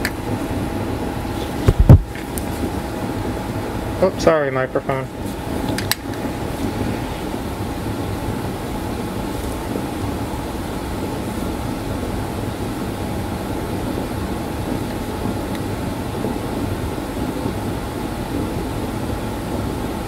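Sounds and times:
mechanical rumble and hum: 0.0s - 20.0s.

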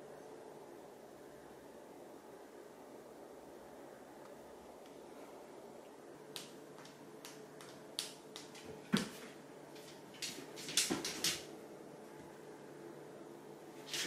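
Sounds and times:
cat claws tapping on hard floor: 6.4s - 11.5s.

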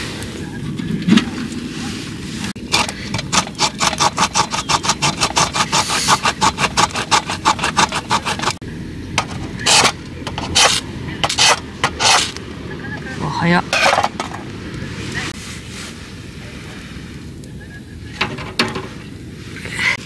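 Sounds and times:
hand saw cutting wood: 2.7s - 8.6s, 9.2s - 12.4s.

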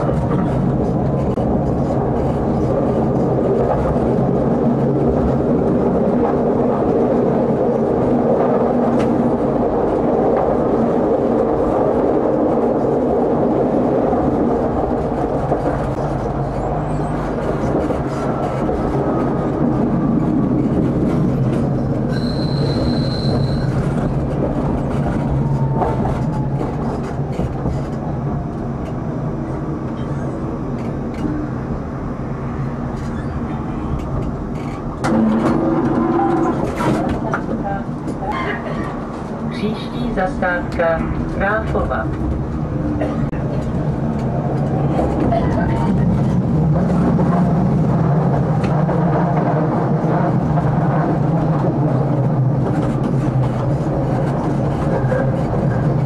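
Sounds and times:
tram motor hum: 0.0s - 56.0s
wheel-on-rail noise: 0.0s - 56.0s
wheels squealing: 22.1s - 24.0s.

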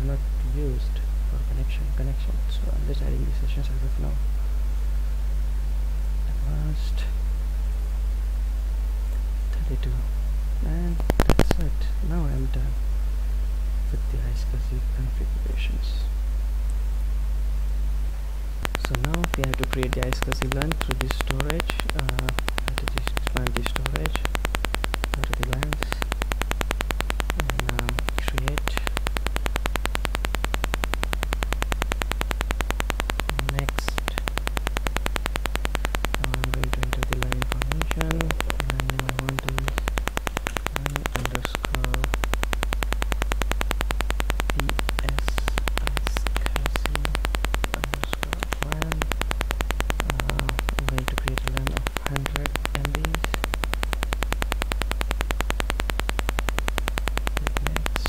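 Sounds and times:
electrical hum and buzzing: 0.0s - 58.0s
short low blips: 13.9s - 58.0s.

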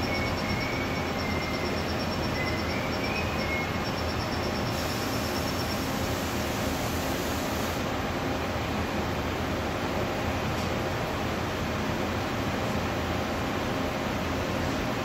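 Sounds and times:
faint wavering whine: 0.0s - 6.0s.

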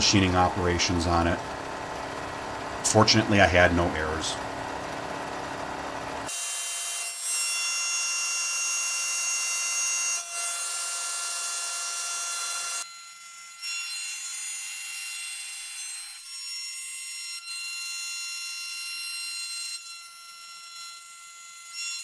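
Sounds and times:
milling machine high whine: 0.0s - 6.3s.

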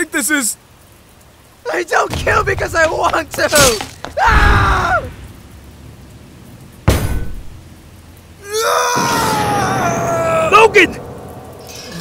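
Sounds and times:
person screaming: 4.2s - 5.1s, 8.4s - 10.6s
person shouting: 4.2s - 5.1s
punch hit sound effect: 6.9s - 7.5s.

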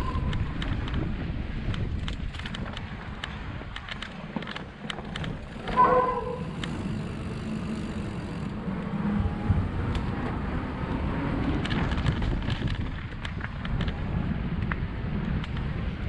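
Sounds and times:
bike clicks and rattles: 0.0s - 16.0s
tyres and wind rumble: 0.0s - 16.0s.

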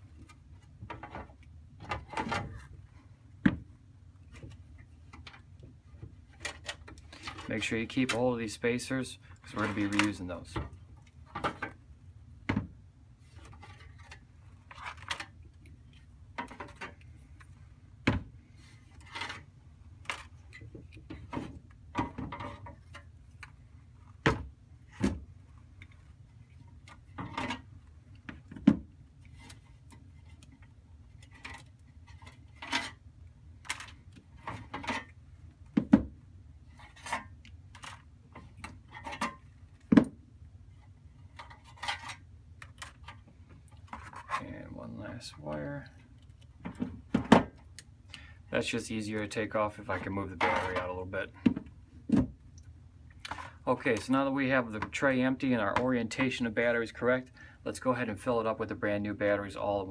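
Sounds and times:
light rubbing and scraping: 40.7s - 46.6s.

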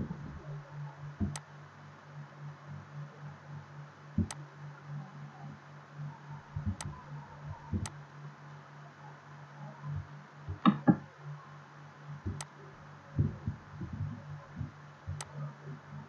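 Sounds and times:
low electrical hum: 0.0s - 16.0s
computer mouse clicks: 1.2s - 1.4s, 4.2s - 4.4s, 7.7s - 8.0s, 12.3s - 12.5s.

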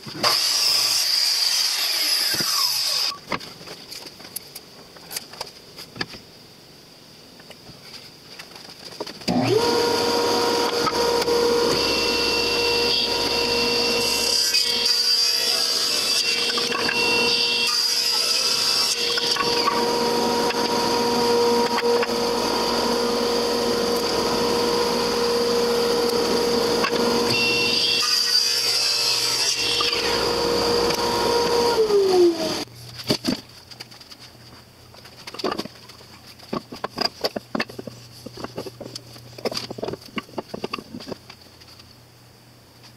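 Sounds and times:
saw blade cutting board: 0.2s - 3.2s, 9.4s - 32.7s
table saw running: 9.4s - 32.7s.

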